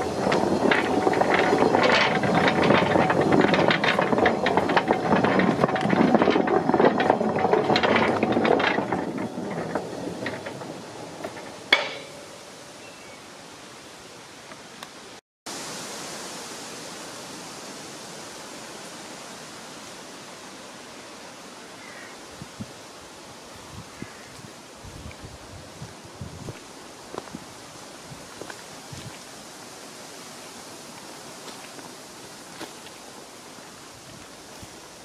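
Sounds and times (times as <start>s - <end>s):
faint outdoor hiss: 10.7s - 35.0s.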